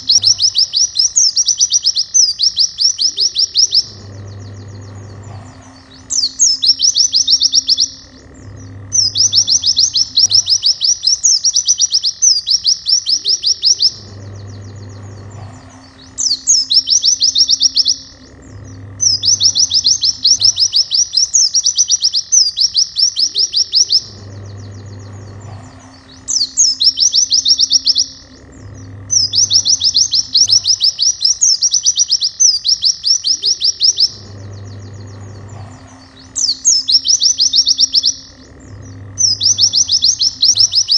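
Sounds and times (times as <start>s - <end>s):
bird trilling song: 0.0s - 40.9s
quiet background music: 2.9s - 22.0s.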